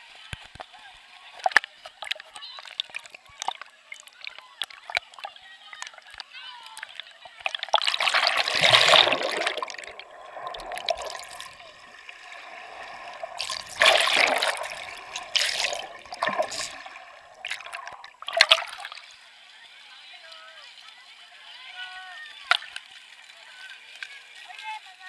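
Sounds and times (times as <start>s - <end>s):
water rushing and bubbling: 7.3s - 19.1s.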